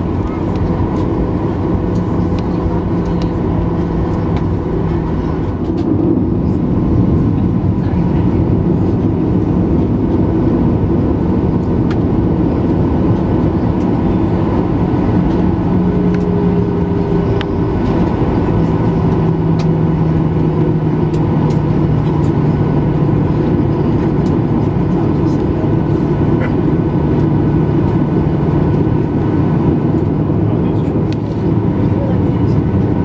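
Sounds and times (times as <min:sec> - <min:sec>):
dense cabin rumble: 0:00.0 - 0:33.0
jet engines running at low thrust: 0:00.0 - 0:33.0.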